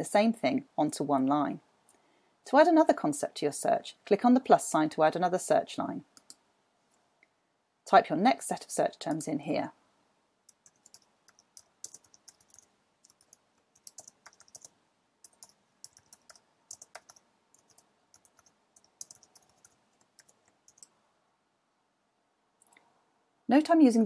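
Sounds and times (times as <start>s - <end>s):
faint keyboard typing: 6.1s - 6.4s, 10.5s - 21.0s.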